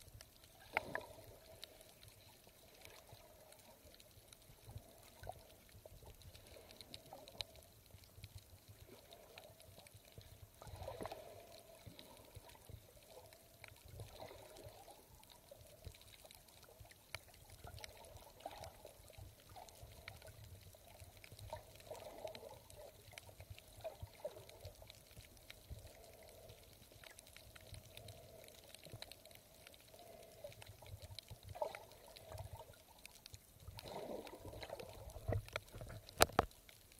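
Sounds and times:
muffled water sloshing and trickling: 0:00.0 - 0:36.9
small clicks: 0:34.6 - 0:36.9.

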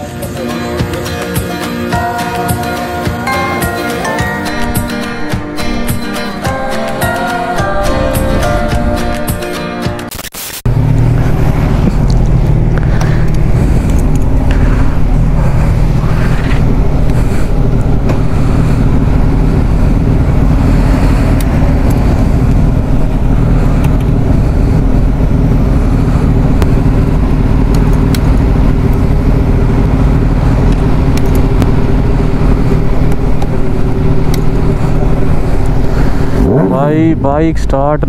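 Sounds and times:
motorcycle engine idling: 0:10.7 - 0:38.0.

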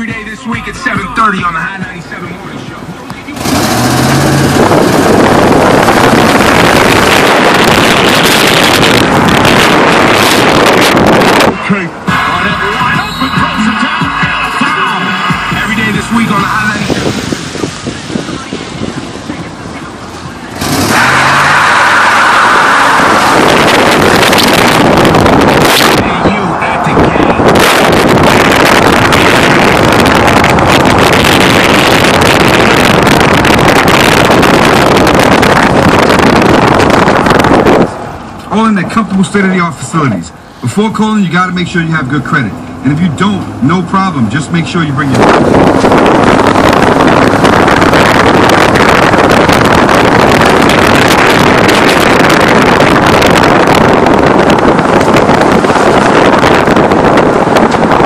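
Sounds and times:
tyres roaring on a wet road: 0:00.0 - 0:58.0
wind buffeting a microphone: 0:03.6 - 0:11.7, 0:15.5 - 0:20.9, 0:22.6 - 0:38.5, 0:45.0 - 0:58.0.

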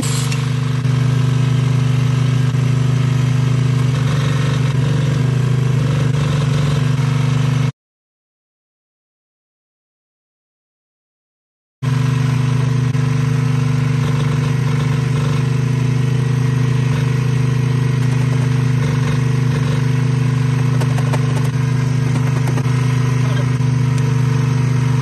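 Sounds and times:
generator engine running: 0:00.0 - 0:07.7, 0:11.8 - 0:25.0.

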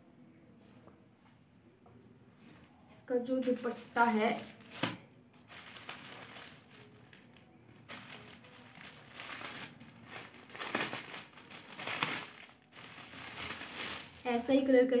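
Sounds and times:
cloth rustling and crinkling: 0:03.2 - 0:15.0.

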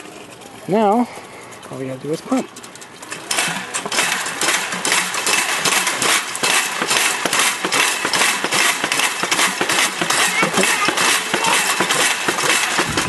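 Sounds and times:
chain and pump clattering: 0:00.0 - 0:13.0.

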